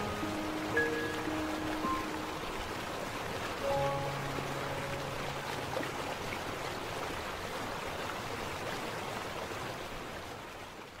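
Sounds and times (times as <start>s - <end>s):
soft music: 0.0s - 6.7s
waterfall rushing: 0.0s - 10.3s.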